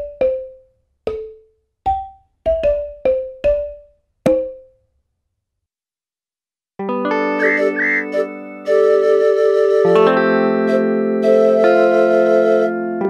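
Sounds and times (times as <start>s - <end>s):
mallet percussion jingle: 0.0s - 4.7s.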